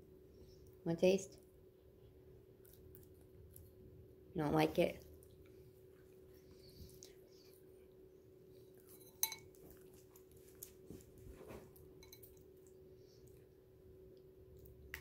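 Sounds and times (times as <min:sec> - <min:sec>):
spoon clinking against bowl: 0:09.0 - 0:09.6, 0:12.0 - 0:12.4.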